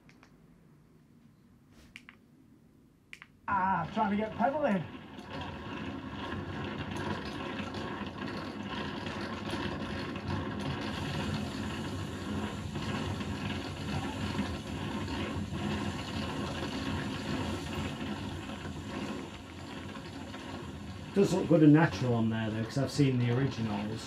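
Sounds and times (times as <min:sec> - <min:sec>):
small clicks: 0:00.0 - 0:00.4, 0:01.9 - 0:02.2, 0:03.1 - 0:04.0
steady engine-like noise: 0:03.5 - 0:24.0.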